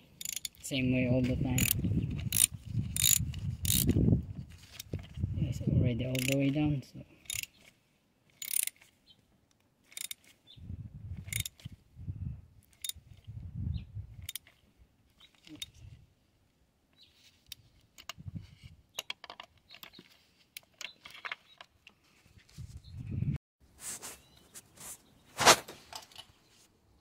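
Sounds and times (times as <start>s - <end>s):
hand tools clicking: 0.0s - 0.6s, 1.6s - 4.0s, 6.1s - 6.6s, 7.2s - 7.6s, 8.4s - 8.8s, 9.9s - 10.3s, 11.3s - 11.6s.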